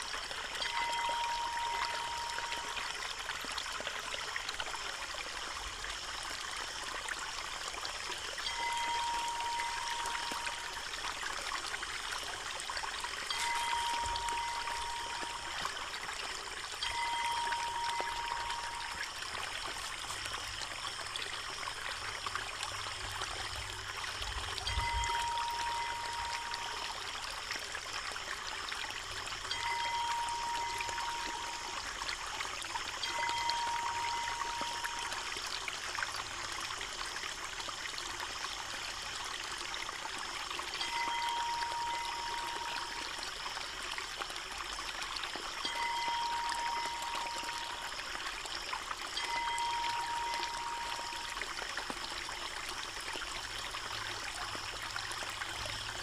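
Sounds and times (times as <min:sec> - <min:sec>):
thin steady high tone: 0:00.0 - 0:04.1, 0:08.2 - 0:22.2, 0:24.3 - 0:36.7, 0:40.1 - 0:44.2, 0:44.9 - 0:56.0.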